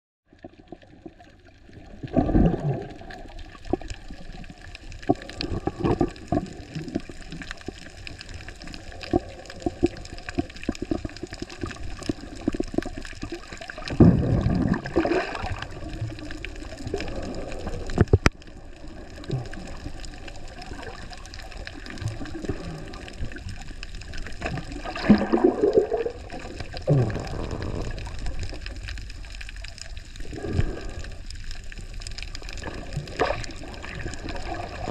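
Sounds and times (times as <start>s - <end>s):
underwater gurgling and bubbling: 0.3s - 34.9s
faint clicks: 15.9s - 25.0s.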